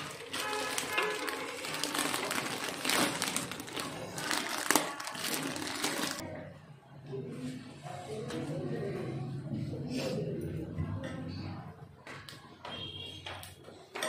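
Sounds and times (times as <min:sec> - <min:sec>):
plastic bread bag crinkling: 0:00.0 - 0:06.2.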